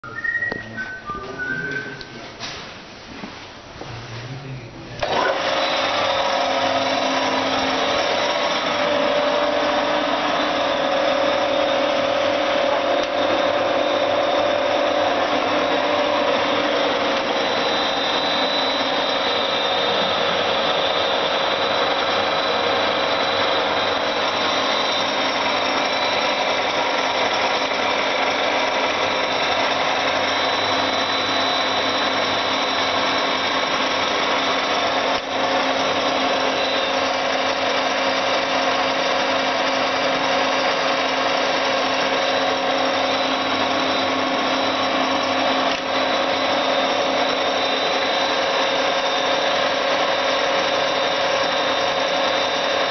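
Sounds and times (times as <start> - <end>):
milling machine whirring: 4.9 - 52.9.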